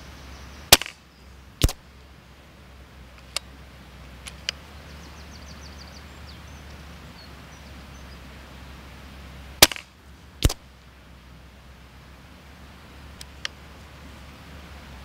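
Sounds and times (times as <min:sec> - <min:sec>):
silenced air rifle shot: 0:00.7 - 0:01.0, 0:01.6 - 0:01.8, 0:09.6 - 0:10.7
sharp crack: 0:00.7 - 0:01.8, 0:09.6 - 0:10.7.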